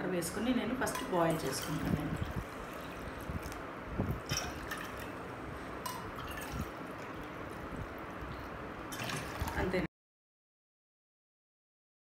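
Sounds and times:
water pouring into glass bowl: 1.2s - 5.2s, 5.8s - 9.6s.

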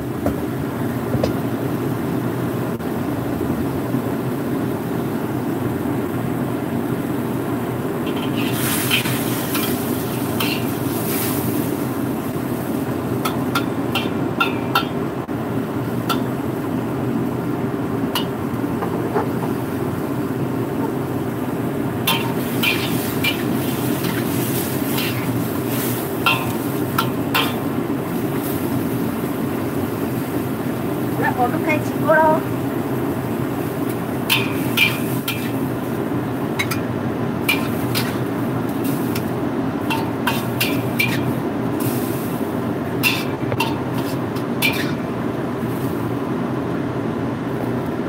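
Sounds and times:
metal spatula scraping a wok: 8.0s - 11.8s, 22.1s - 27.7s, 34.3s - 35.6s, 37.4s - 42.4s, 43.0s - 45.0s.

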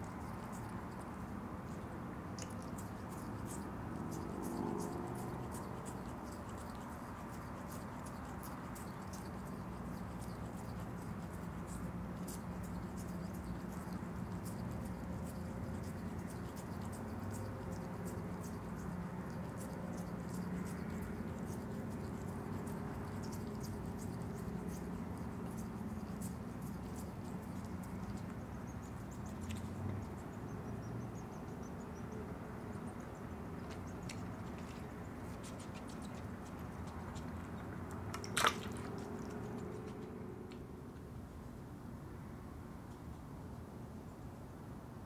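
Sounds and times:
wet licking and smacking: 0.0s - 40.1s
opossum mouth clicking: 0.0s - 40.6s
steady low hum: 0.0s - 45.0s.

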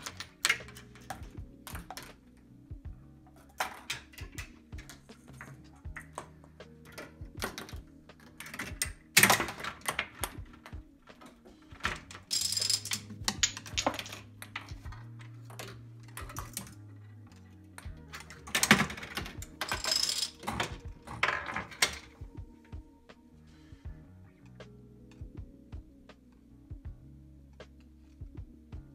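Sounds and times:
balls rolling on plastic tracks: 3.3s - 22.2s.

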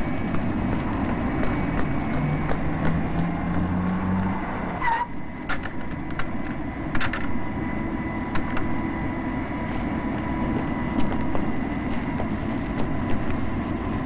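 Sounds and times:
car engine running: 0.0s - 4.8s
high even whine: 0.0s - 14.0s
steady rushing noise: 0.0s - 14.0s.

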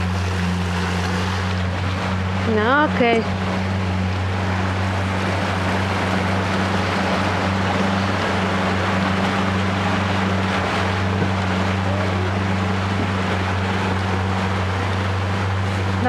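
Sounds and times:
motorboat engine humming: 0.0s - 16.0s
wind: 0.0s - 16.0s.

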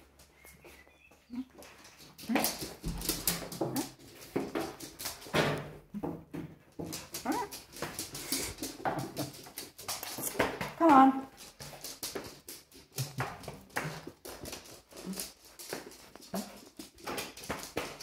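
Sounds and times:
dog whimpering and whining: 7.2s - 7.5s.

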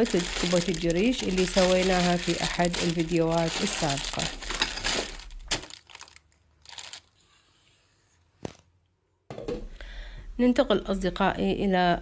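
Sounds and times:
plastic bag crinkling: 0.0s - 7.2s
plastic bag rustle: 0.0s - 7.4s.

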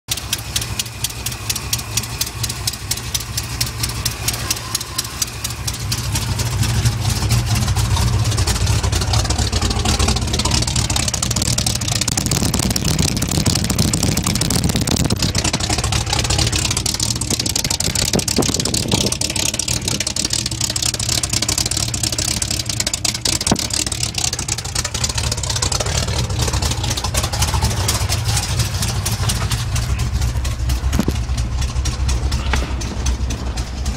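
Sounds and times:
car engine running: 0.1s - 33.9s.

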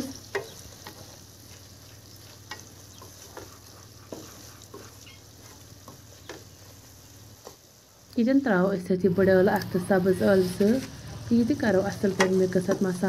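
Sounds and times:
soft sizzle: 0.0s - 13.0s
spatula knocking and scraping pan: 0.2s - 6.8s, 11.8s - 13.0s.

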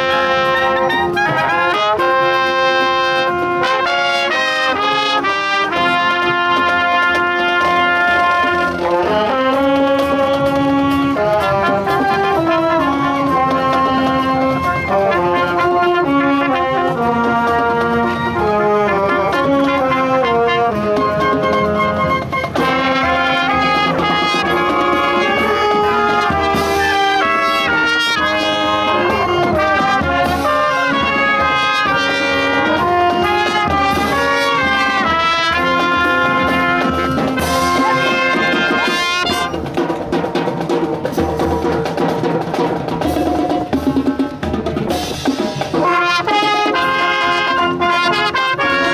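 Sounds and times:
drums: 0.0s - 48.9s
marching band playing: 0.0s - 48.9s.

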